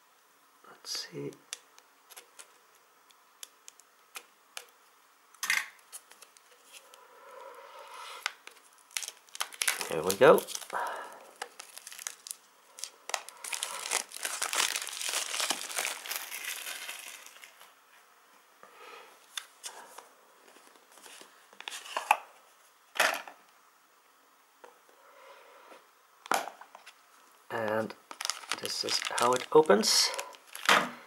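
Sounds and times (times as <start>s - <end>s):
plastic shrink wrap crinkling: 8.2s - 17.8s, 26.7s - 31.0s.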